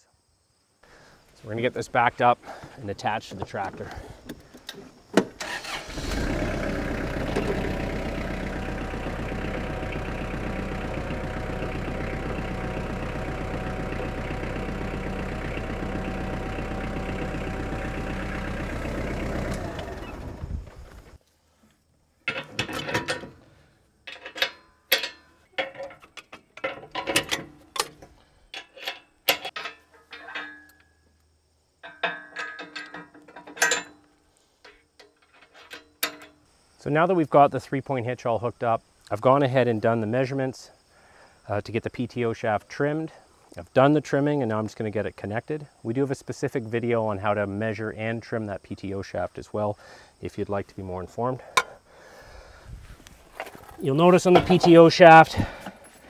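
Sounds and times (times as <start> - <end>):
tractor engine running: 1.9 - 21.2, 52.7 - 56.0
metal clanks and knocks: 22.2 - 23.4, 24.0 - 31.0, 31.8 - 36.4, 53.4 - 55.8.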